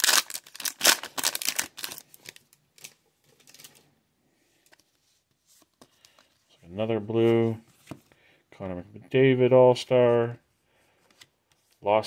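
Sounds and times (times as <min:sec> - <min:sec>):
foil wrapper crinkling: 0:00.0 - 0:03.8.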